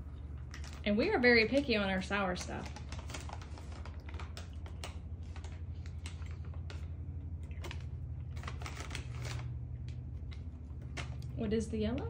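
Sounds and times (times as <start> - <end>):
low steady hum: 0.0 - 12.0
plastic bag crinkling: 0.0 - 12.0.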